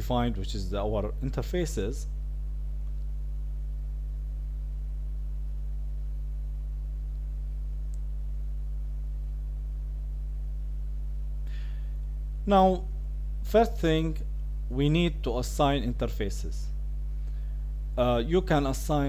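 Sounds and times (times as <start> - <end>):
low electrical hum: 0.0 - 19.0
short breath: 11.4 - 12.0, 17.2 - 17.7.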